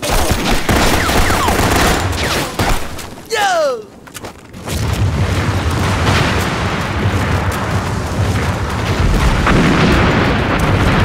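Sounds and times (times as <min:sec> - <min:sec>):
gunshots cracking: 0:00.0 - 0:03.3
explosion: 0:04.6 - 0:11.0
low rumble of blasts: 0:04.8 - 0:11.0.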